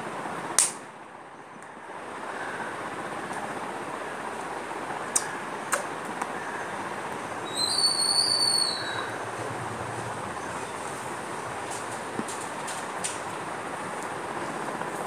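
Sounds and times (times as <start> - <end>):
steady background noise: 0.0 - 15.0
sharp clicks: 0.6 - 0.8
high whistle: 7.5 - 9.2.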